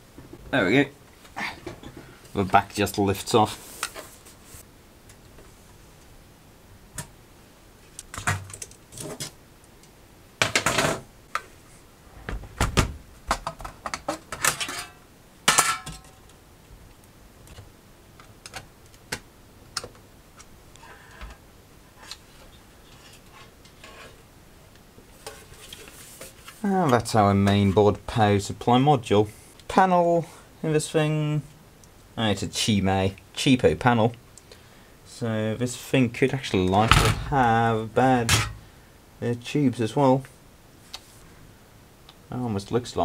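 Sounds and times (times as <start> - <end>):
metal and plastic parts clanking: 13.3 - 16.3.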